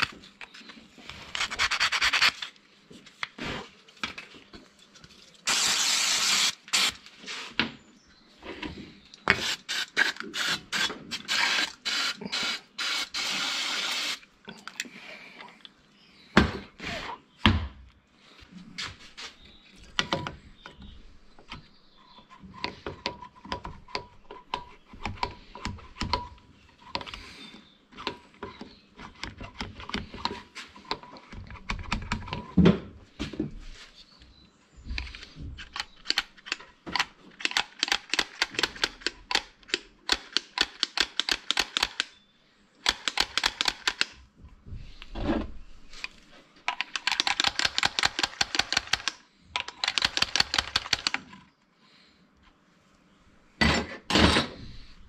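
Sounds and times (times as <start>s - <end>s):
clicks and knocks of handled parts: 34.9s - 42.2s, 46.0s - 51.5s.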